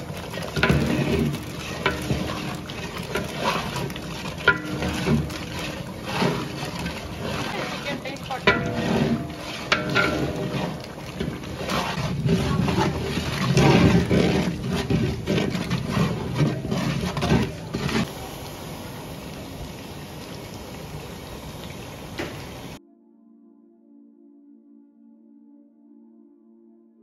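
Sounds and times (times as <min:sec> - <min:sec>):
ladle scraping metal pot: 0:00.0 - 0:18.2
gravy bubbling and sizzling: 0:00.0 - 0:22.8
steady hiss: 0:18.1 - 0:22.8
soft ambient music: 0:22.8 - 0:27.0.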